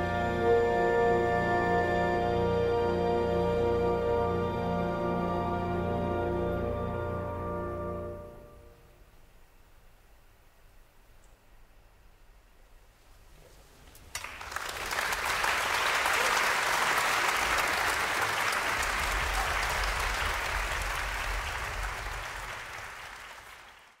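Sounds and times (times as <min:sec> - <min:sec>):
audience applause: 0:14.1 - 0:24.0.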